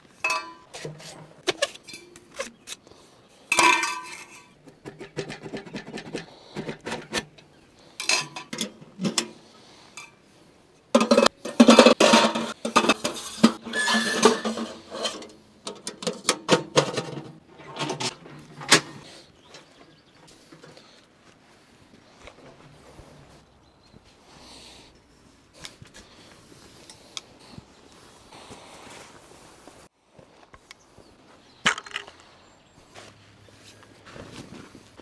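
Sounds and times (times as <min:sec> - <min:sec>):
metal knocks and rattles: 0:03.5 - 0:09.4, 0:11.0 - 0:19.0.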